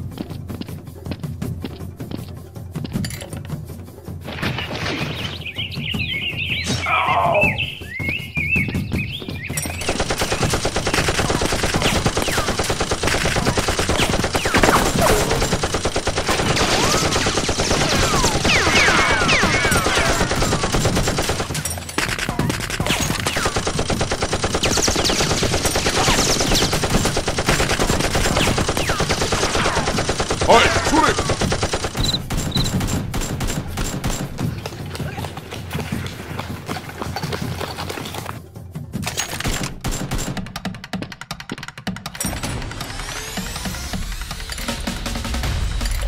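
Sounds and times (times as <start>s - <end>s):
rapid automatic gunfire: 9.7s - 35.1s, 39.3s - 40.6s.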